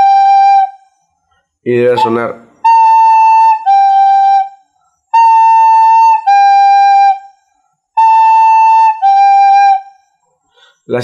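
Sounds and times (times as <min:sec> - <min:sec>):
recorder playing two notes: 0:01.9 - 0:04.1.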